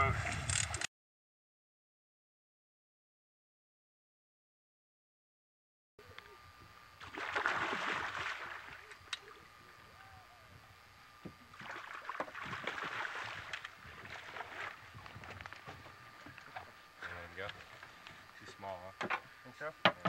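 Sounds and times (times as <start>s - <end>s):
fish thrashing water splashing: 7.0s - 8.8s, 11.5s - 15.0s.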